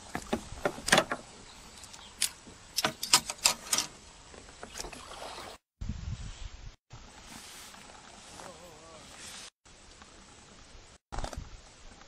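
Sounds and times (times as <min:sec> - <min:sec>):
water splashing: 0:04.6 - 0:05.6
light steady hiss: 0:06.9 - 0:12.0.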